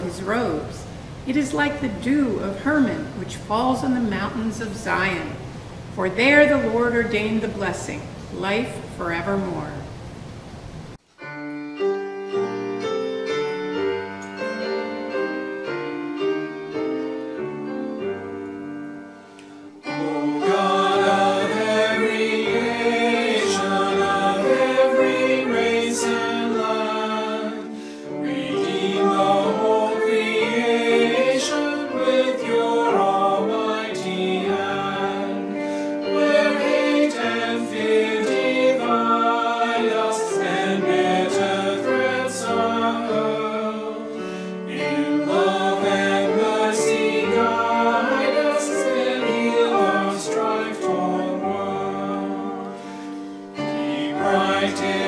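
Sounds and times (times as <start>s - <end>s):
grand piano: 0.0s - 55.0s
mixed choir singing: 19.8s - 55.0s.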